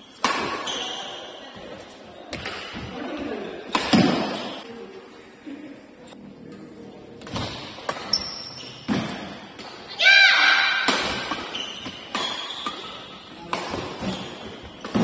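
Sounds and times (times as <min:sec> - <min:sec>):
shoe squeak: 0:00.0 - 0:01.4, 0:08.1 - 0:08.9, 0:11.5 - 0:13.2.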